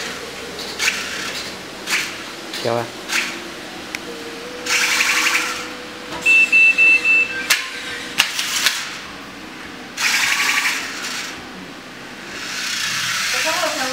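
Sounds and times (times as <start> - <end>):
high electronic beeps: 4.1 - 8.2.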